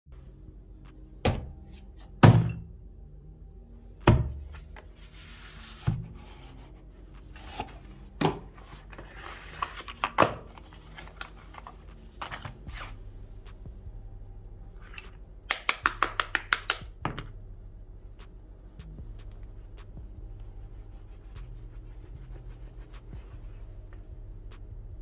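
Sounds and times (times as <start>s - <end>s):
cardboard sliding and rustling: 4.5s - 6.6s, 8.6s - 12.9s.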